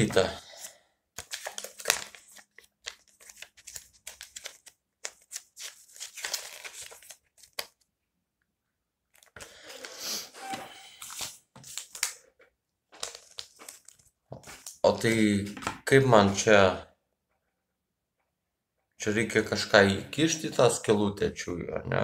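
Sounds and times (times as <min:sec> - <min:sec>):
paper leaflet rustling: 0:00.0 - 0:07.9, 0:10.8 - 0:12.4, 0:13.0 - 0:15.8.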